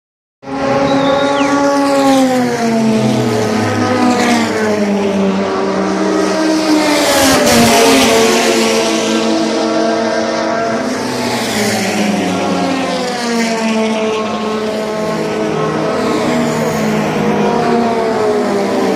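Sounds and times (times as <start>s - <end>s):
racing car engines running: 0.5s - 18.9s.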